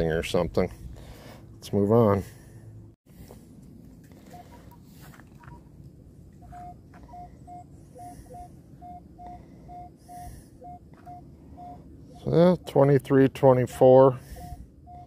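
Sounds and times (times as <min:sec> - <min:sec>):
metal detector beeps: 0:04.2 - 0:05.7, 0:06.4 - 0:15.0.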